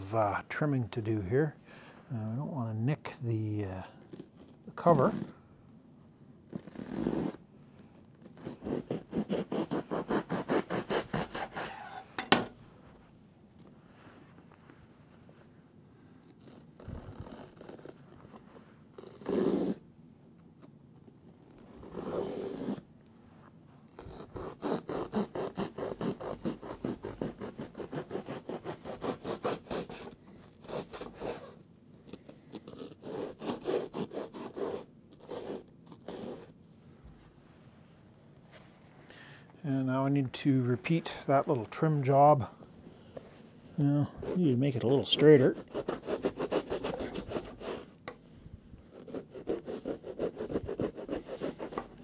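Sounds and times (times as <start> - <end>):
knife sawing through foam: 8.2 - 12.1, 23.9 - 31.6, 32.5 - 36.5, 43.9 - 47.9, 48.9 - 52.0.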